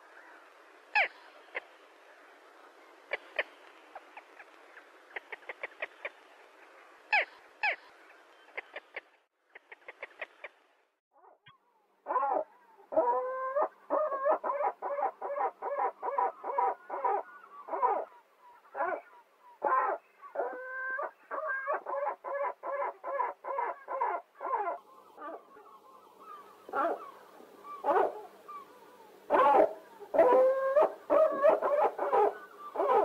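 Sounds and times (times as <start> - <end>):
gull calling: 0.2 - 1.7, 7.1 - 7.9, 11.2 - 33.0.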